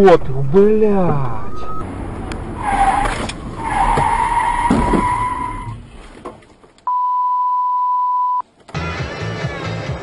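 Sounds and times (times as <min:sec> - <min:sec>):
car road noise: 0:00.0 - 0:06.9
high squeal: 0:02.6 - 0:05.8.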